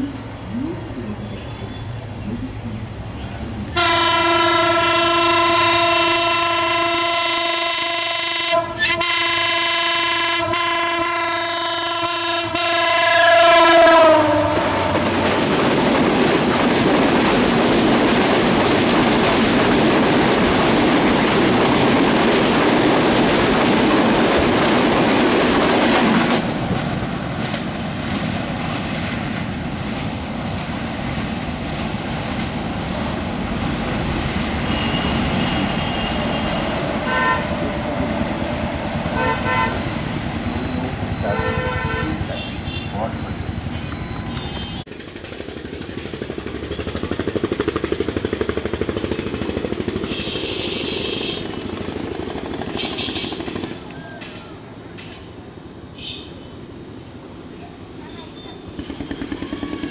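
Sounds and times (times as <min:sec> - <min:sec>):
locomotive air horn blast: 0:03.7 - 0:15.3, 0:34.6 - 0:37.6, 0:39.1 - 0:40.0, 0:41.3 - 0:44.9, 0:50.0 - 0:51.6, 0:52.7 - 0:53.6
train wheels clattering on rails: 0:13.9 - 0:55.4, 0:58.4 - 0:59.9.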